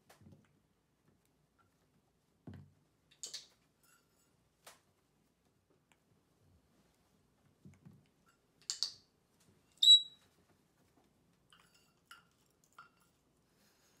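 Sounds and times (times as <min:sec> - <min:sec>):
parrot whistle: 0:09.8 - 0:10.2
soft chirps: 0:09.8 - 0:10.2.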